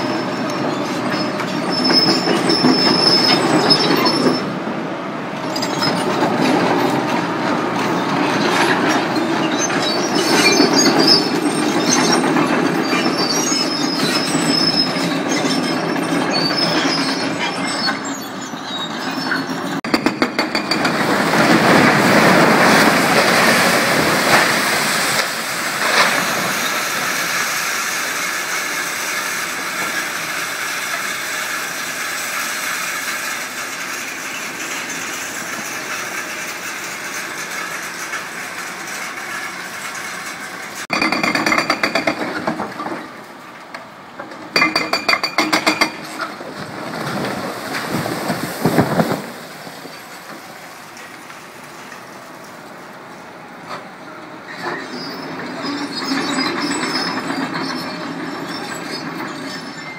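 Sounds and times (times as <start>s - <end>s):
concrete building collapsing: 19.2s - 27.1s, 44.5s - 51.8s.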